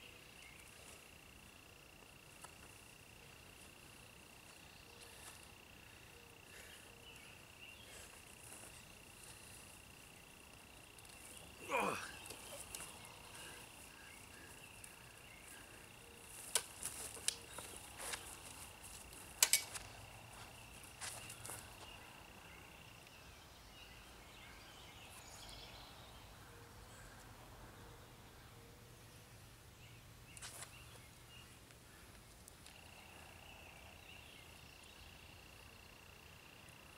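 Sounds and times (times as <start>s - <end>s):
high insect trill: 0.0s - 23.0s.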